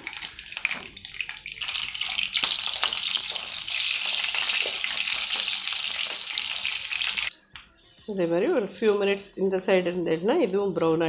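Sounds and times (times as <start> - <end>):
vegetable slices sizzling in oil: 0.0 - 7.4
oil crackling and popping: 0.0 - 9.0.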